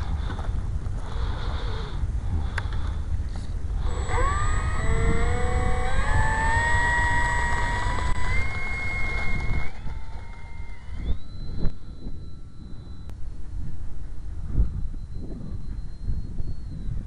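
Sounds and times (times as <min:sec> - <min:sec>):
wind on microphone: 0:00.0 - 0:17.0
model plane motor whine: 0:01.0 - 0:11.4.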